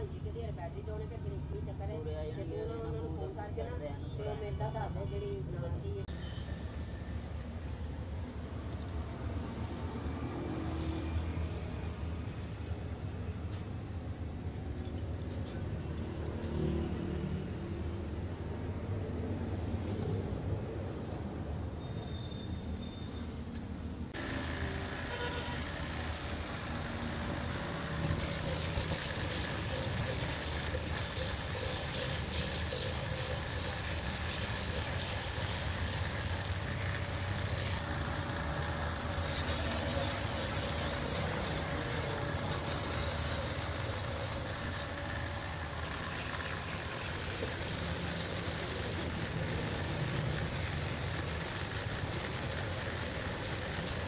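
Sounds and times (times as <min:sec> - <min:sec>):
buffer wheel grinding rubber: 0:24.2 - 0:54.0
motor hum: 0:24.2 - 0:54.0.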